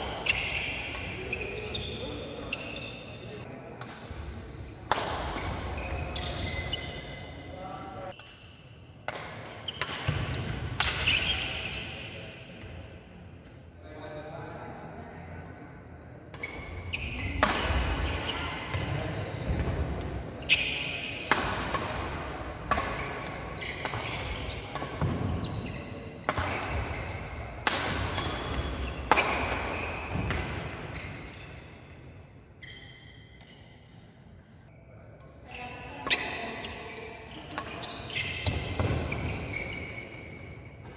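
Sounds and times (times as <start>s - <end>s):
badminton rackets hitting shuttlecock: 4.8s - 6.3s, 8.2s - 11.4s, 16.3s - 18.8s, 20.4s - 30.8s, 37.5s - 39.3s.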